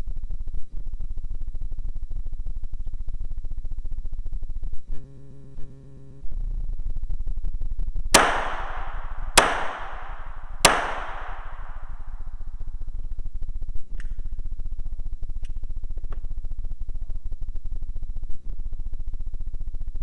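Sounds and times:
pistol shots echoing: 0:08.2 - 0:12.0.

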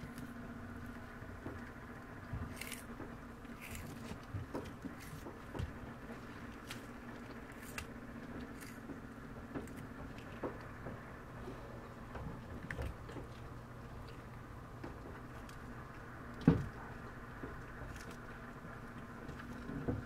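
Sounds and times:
tortoise crunching lettuce: 0:00.0 - 0:11.8, 0:16.8 - 0:19.8
steady low hum: 0:00.0 - 0:20.0.

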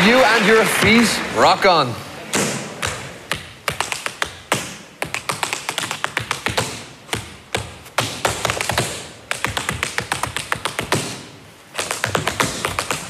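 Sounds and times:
tap shoes on stage floor: 0:02.4 - 0:13.0.

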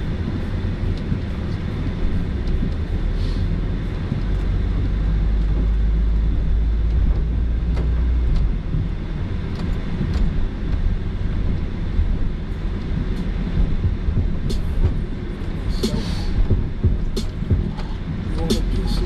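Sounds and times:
van engine and tyres rumbling: 0:00.0 - 0:19.0
sharp clicks: 0:15.8 - 0:19.0.

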